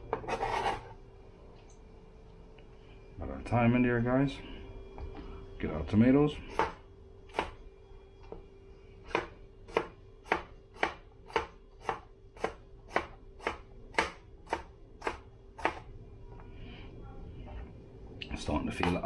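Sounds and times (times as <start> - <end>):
knife chopping on cutting board: 9.1 - 15.8.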